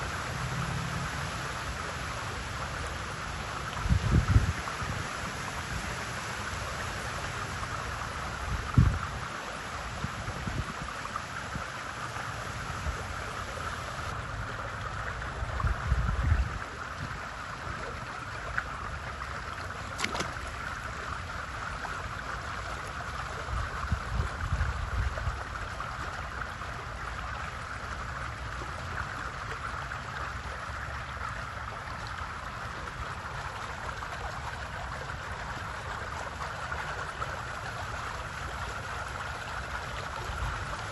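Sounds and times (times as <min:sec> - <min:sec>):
pool water hissing: 0:00.0 - 0:15.8, 0:16.5 - 0:40.9
wind rumbling on microphone: 0:00.0 - 0:21.1, 0:22.6 - 0:26.2, 0:40.0 - 0:40.9.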